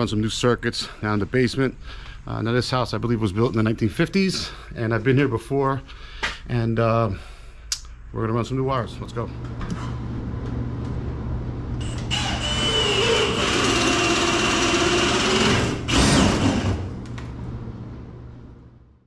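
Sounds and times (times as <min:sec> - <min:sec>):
cordless drill boring into wood: 0:11.8 - 0:16.8.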